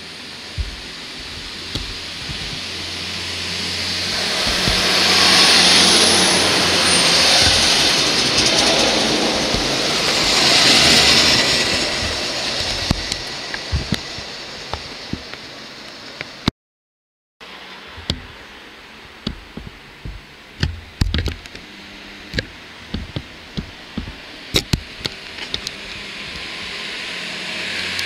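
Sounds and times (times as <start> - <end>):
train approaching and passing: 0.0 - 16.4, 23.6 - 28.0
irregular knocks and thumps: 0.6 - 2.7, 4.1 - 6.3, 7.1 - 14.3, 19.2 - 21.5, 22.4 - 25.1.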